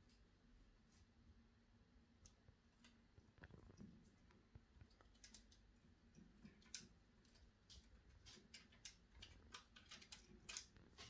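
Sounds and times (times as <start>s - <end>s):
birds pecking in wire cage: 4.8s - 11.0s.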